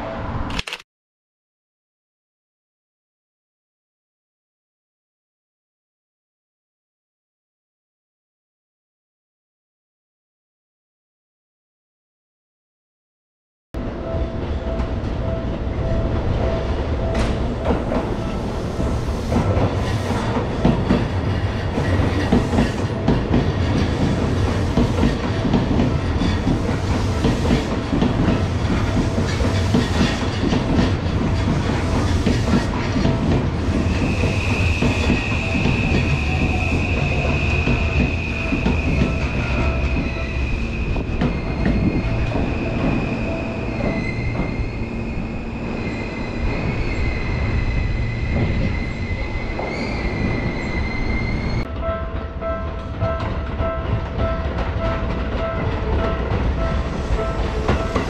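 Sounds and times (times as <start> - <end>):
train low rumble: 13.8 - 58.0
high-pitched wheel squeal: 33.8 - 51.7.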